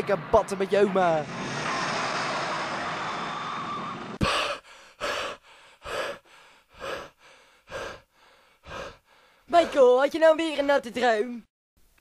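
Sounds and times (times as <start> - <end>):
man panting heavily: 4.2 - 10.0.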